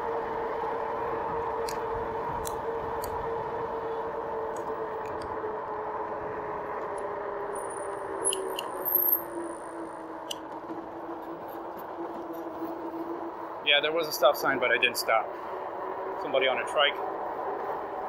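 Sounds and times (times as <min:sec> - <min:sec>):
electric bike motor whine: 0:00.0 - 0:13.6.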